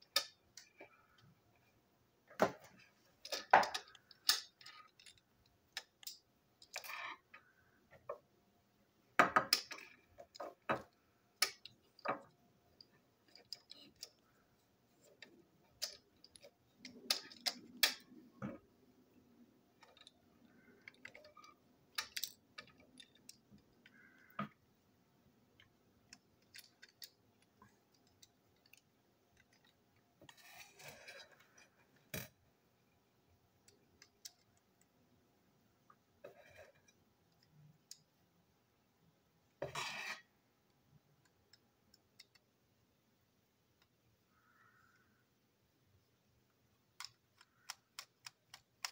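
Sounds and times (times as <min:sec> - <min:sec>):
small plastic and metal parts clicking: 0:00.0 - 0:01.3, 0:02.7 - 0:08.2, 0:09.4 - 0:14.4, 0:15.0 - 0:18.3, 0:19.7 - 0:24.6, 0:25.6 - 0:32.4, 0:33.6 - 0:34.9, 0:41.1 - 0:42.6, 0:46.9 - 0:48.9.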